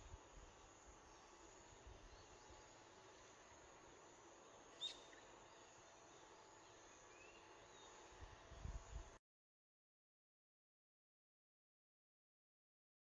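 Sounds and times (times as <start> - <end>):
insect calls: 0.0 - 9.1
low steady hiss: 0.0 - 9.2
bird calls: 4.6 - 8.1
wind rumble on microphone: 8.2 - 9.2.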